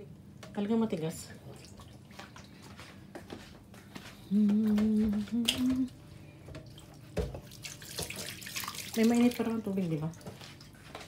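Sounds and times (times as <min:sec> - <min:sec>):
person humming: 0:04.2 - 0:06.0.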